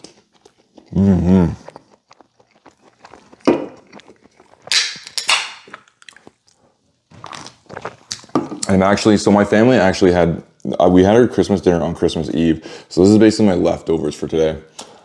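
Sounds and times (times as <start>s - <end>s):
chewing: 0.0s - 8.7s
person humming: 0.9s - 1.7s.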